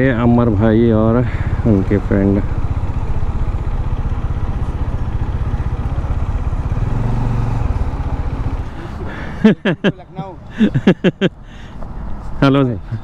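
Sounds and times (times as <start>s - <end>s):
motorcycle engine running: 0.0s - 9.7s.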